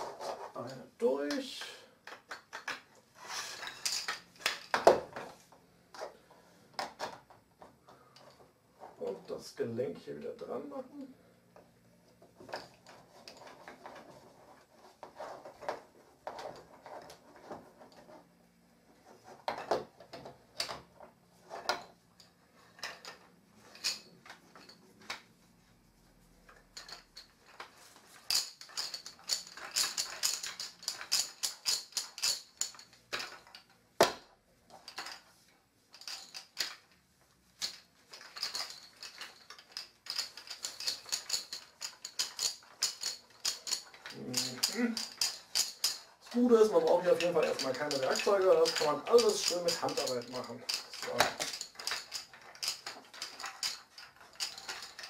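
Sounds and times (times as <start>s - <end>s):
wooden beads clacking: 0.0s - 6.1s, 19.4s - 55.0s
wooden parts knocking together: 0.6s - 3.0s, 3.6s - 5.4s, 37.6s - 55.0s.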